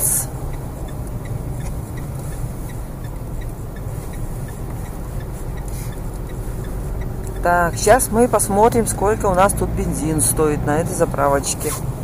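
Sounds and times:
car engine and tyre noise: 0.0s - 12.0s.

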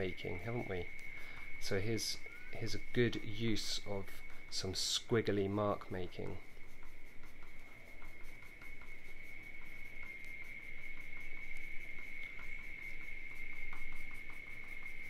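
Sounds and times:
pencil scratching on paper: 5.2s - 11.6s, 12.4s - 15.0s.

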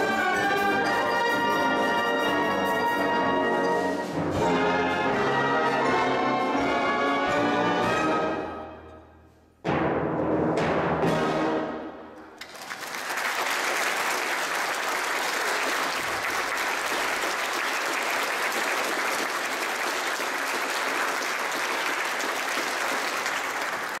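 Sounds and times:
audience applauding: 12.4s - 24.0s.

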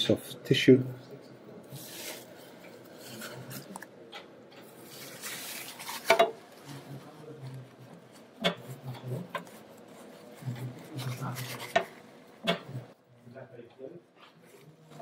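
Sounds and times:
tissue wiping against metal: 1.7s - 3.8s, 4.8s - 12.2s.

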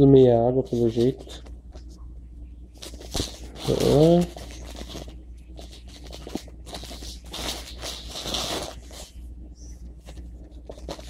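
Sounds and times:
plastic bag crinkling: 2.8s - 9.2s, 10.0s - 11.0s.

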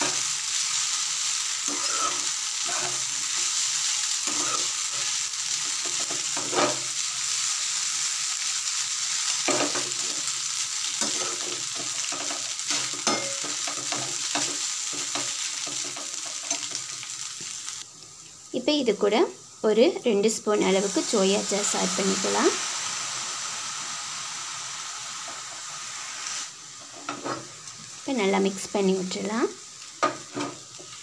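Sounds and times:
food sizzling in a frying pan: 0.0s - 31.0s
metal spoon scraping pan: 1.6s - 3.6s, 4.2s - 5.2s, 5.8s - 6.8s, 11.0s - 16.8s, 26.9s - 27.5s.

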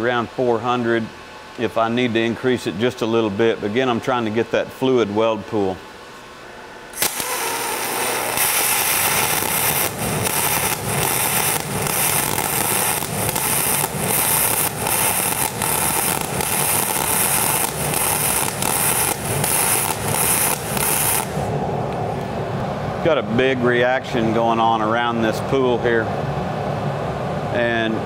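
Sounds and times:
welding arc crackling hiss: 6.9s - 21.6s.

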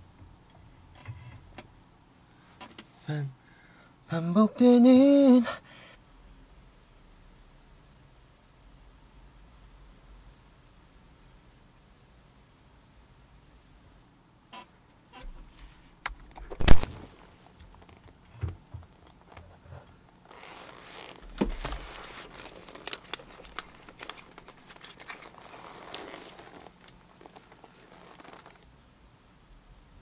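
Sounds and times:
leather jacket rustling: 20.2s - 28.6s.

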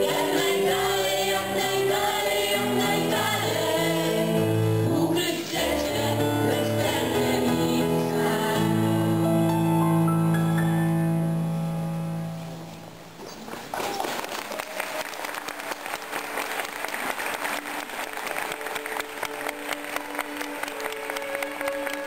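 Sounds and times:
music held chord: 0.0s - 13.0s
audience applause: 13.3s - 22.0s.

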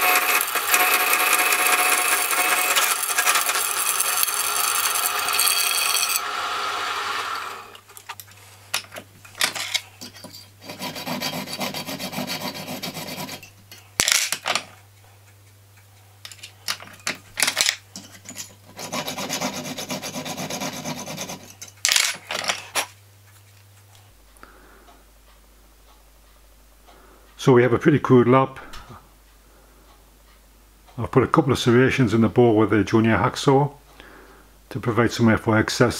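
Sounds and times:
hacksaw rasping strokes: 0.0s - 7.8s, 9.5s - 13.5s, 18.2s - 21.7s
milling saw cutting metal: 0.0s - 7.9s, 9.4s - 13.6s, 18.0s - 21.8s.

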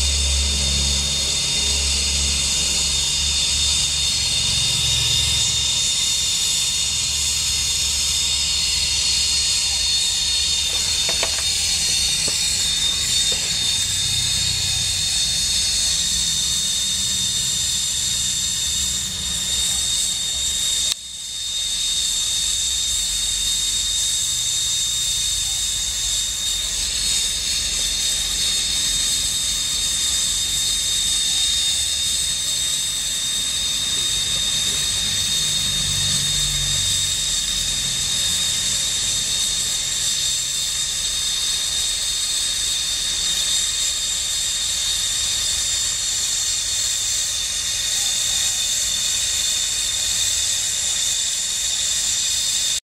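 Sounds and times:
torch flame hissing: 0.0s - 52.8s.

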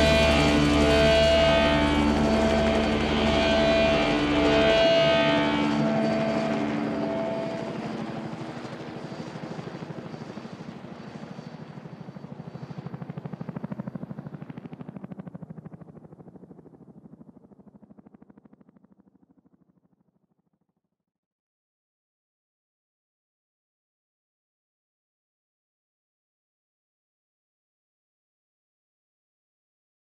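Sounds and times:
electric guitar and bass chord: 0.0s - 8.4s
fast throbbing fluttering sound: 0.0s - 9.8s.

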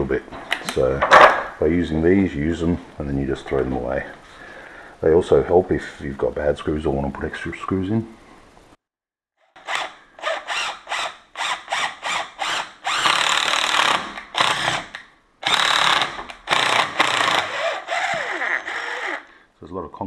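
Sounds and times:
power drill boring into metal: 9.6s - 19.3s.

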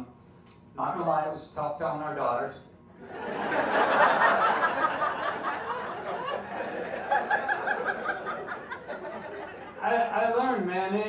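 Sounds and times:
audience laughing: 3.0s - 10.1s.

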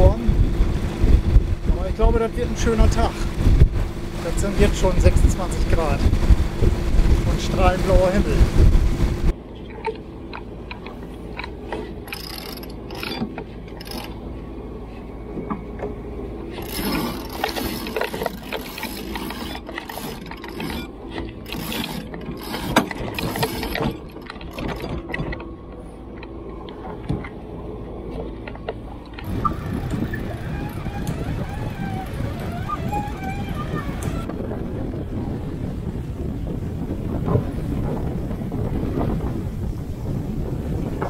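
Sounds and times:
boat engine running: 0.0s - 41.0s
mechanical clicks and rattles: 9.8s - 14.2s.

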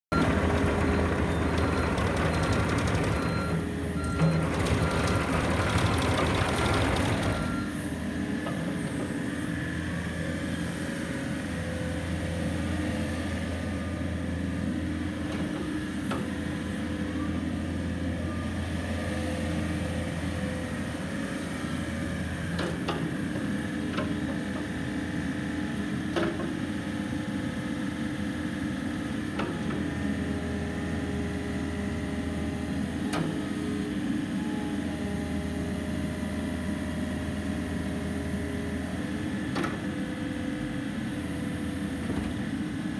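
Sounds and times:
excavator diesel engine running: 0.1s - 9.7s.

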